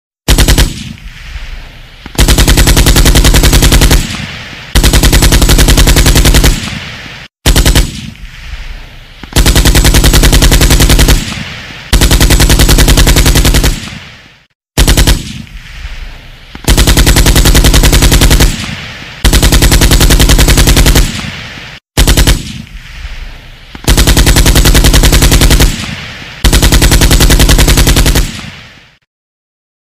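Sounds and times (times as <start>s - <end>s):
assault rifle automatic bursts: 0.3s - 1.0s, 2.1s - 6.9s, 7.5s - 8.1s, 9.4s - 14.1s, 14.8s - 15.4s, 16.7s - 21.4s, 22.0s - 22.6s, 23.8s - 28.6s
gunshot echo: 0.3s - 1.4s, 6.2s - 8.5s, 9.8s - 12.2s, 13.2s - 16.0s.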